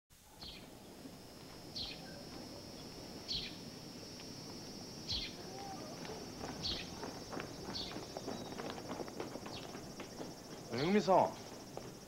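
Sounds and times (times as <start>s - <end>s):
low street noise hum: 0.1s - 12.0s
high insect drone: 0.2s - 12.0s
falling bird chirp: 6.6s - 8.8s.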